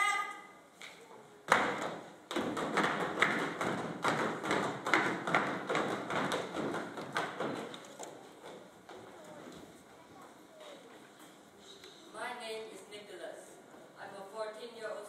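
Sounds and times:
footsteps on stage floor: 0.8s - 11.4s.

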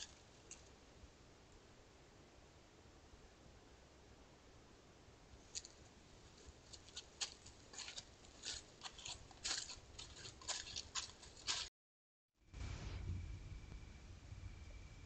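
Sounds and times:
animal moving through dry grass: 5.5s - 11.7s.

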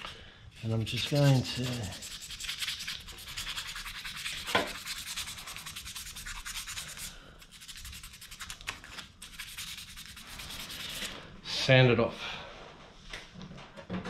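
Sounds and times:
sandpaper rubbing on steel blade: 0.6s - 11.2s.

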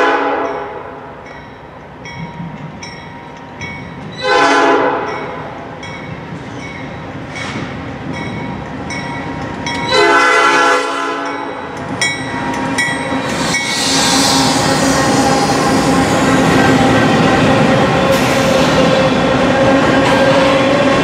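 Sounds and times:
locomotive air horn blowing: 0.0s - 0.4s, 4.2s - 5.1s, 9.9s - 11.4s
locomotive engines and wheels rumbling: 4.9s - 10.2s, 11.2s - 21.0s.

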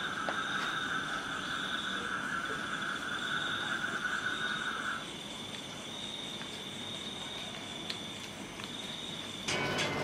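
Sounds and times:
frogs trilling: 0.0s - 10.0s
insects pulsing trill: 0.0s - 10.0s.

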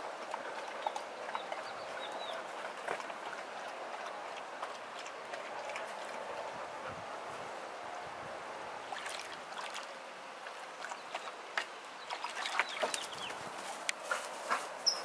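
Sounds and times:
water sloshing in a pool: 0.0s - 14.6s
sharp splashes: 8.8s - 9.9s.

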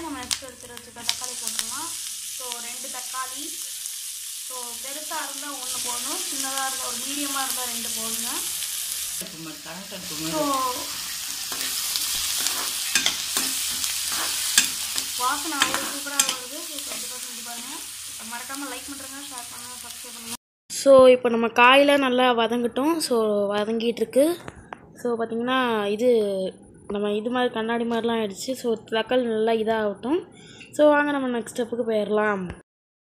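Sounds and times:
vegetables sizzling in a frying pan: 0.0s - 20.4s
spatula clicking and scraping pan: 11.1s - 18.7s.

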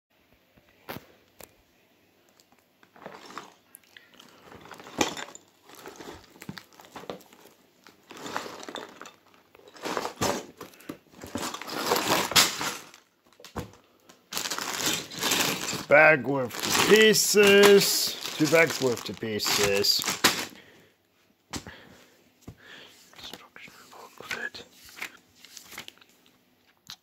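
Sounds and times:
plastic bags crinkling: 2.9s - 20.7s
cardboard box rustling and scraping: 11.2s - 12.8s.

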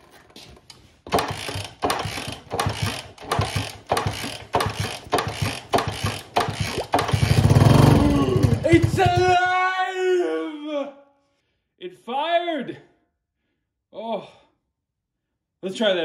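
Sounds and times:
kick-starter ratchet clatter: 1.1s - 9.4s.

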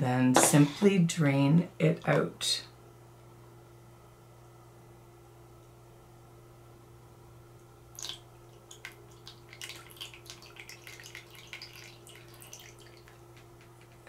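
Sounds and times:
water dripping into bowl: 7.6s - 14.0s
small water splash: 7.9s - 13.5s.

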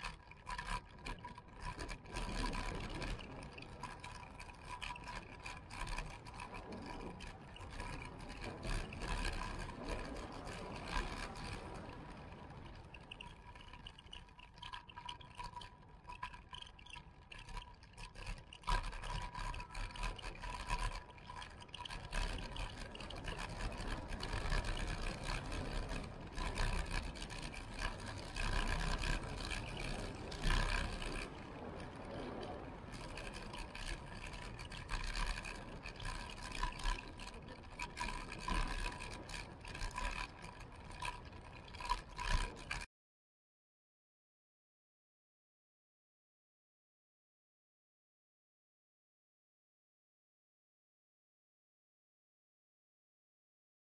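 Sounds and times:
wind noise on microphone: 0.0s - 16.3s, 17.3s - 42.9s
bike tyre rumble on asphalt: 0.0s - 42.9s.

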